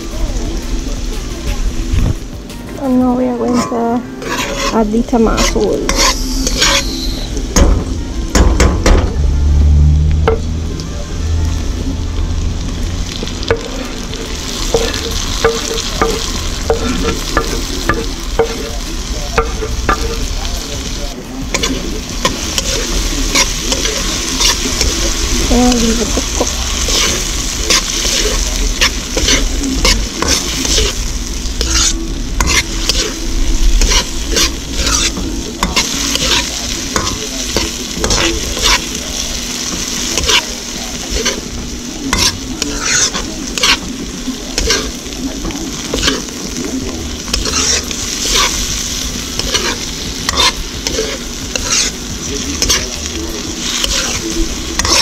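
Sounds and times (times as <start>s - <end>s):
tomatoes sizzling in a wok: 0.0s - 55.0s
metal spoon clinking and scraping: 3.4s - 7.3s, 13.5s - 31.0s, 31.6s - 33.2s, 33.8s - 39.0s, 39.8s - 41.5s, 42.1s - 43.8s, 44.6s - 45.0s, 47.3s - 53.0s, 53.6s - 55.0s.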